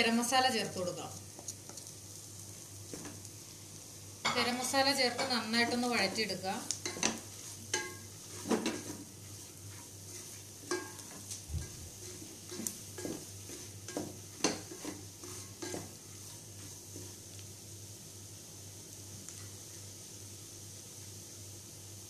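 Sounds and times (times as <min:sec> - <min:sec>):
faint sizzle: 0:00.0 - 0:22.0
wooden spatula scraping pot: 0:06.8 - 0:17.2.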